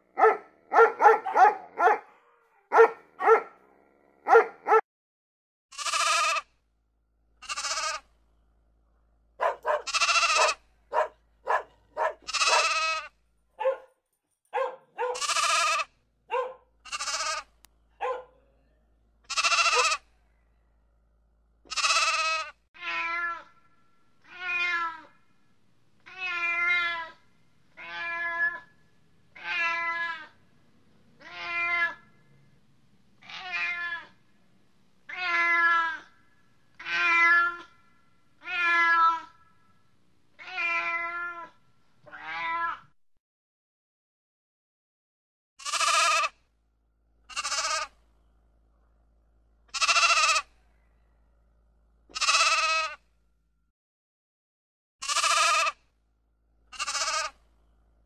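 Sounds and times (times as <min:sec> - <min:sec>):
sheep bleating: 0:05.7 - 0:06.4, 0:07.4 - 0:08.0, 0:09.4 - 0:13.1, 0:15.0 - 0:15.9, 0:16.9 - 0:17.5, 0:19.3 - 0:20.0, 0:21.7 - 0:22.5, 0:45.6 - 0:46.3, 0:47.3 - 0:47.9, 0:49.7 - 0:50.5, 0:52.1 - 0:53.0, 0:55.0 - 0:55.8, 0:56.7 - 0:57.4
cat meowing: 0:09.5 - 0:10.6, 0:12.0 - 0:13.1, 0:15.1 - 0:15.8, 0:19.3 - 0:20.0, 0:21.7 - 0:23.5, 0:24.3 - 0:25.1, 0:26.1 - 0:27.2, 0:29.4 - 0:30.3, 0:31.2 - 0:32.0, 0:33.2 - 0:34.1, 0:35.1 - 0:36.0, 0:36.8 - 0:37.7, 0:38.4 - 0:39.3, 0:40.4 - 0:41.5, 0:42.1 - 0:42.9, 0:49.8 - 0:50.4, 0:52.2 - 0:53.0, 0:55.0 - 0:55.8, 0:56.8 - 0:57.3.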